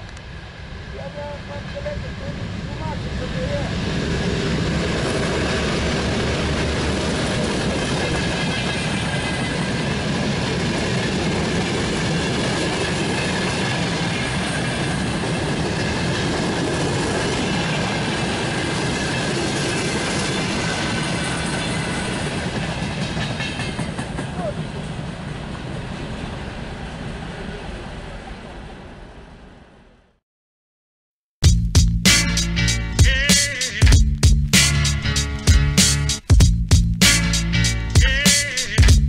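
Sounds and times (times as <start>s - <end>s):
freight train rumbling past: 0.0s - 30.0s, 31.6s - 39.0s
wheels clattering over rails: 4.6s - 25.1s.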